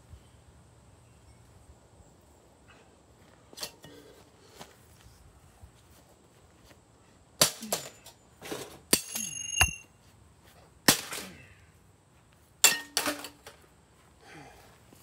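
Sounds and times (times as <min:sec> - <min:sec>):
short metallic ring: 0:08.9 - 0:10.0.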